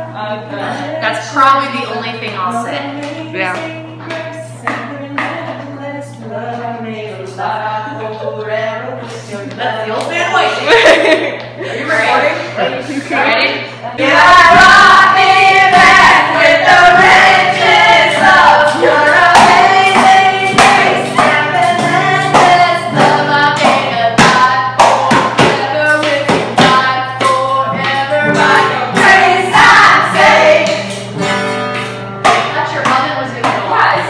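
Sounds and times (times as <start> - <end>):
women singing: 0.0 - 31.2, 32.2 - 34.0
strummed acoustic guitar: 14.0 - 34.0.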